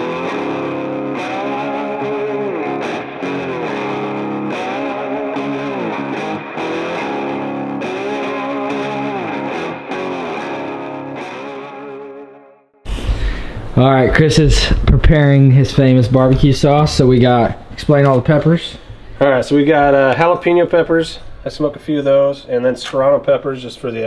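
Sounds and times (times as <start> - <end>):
distorted electric guitar music: 0.0 - 13.8.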